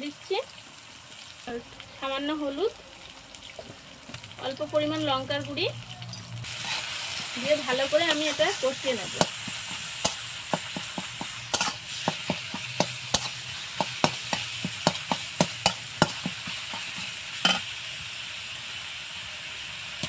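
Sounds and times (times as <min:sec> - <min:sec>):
oil sizzling: 0:00.0 - 0:20.0
metal spatula scraping a pan: 0:06.4 - 0:08.6, 0:09.2 - 0:17.7.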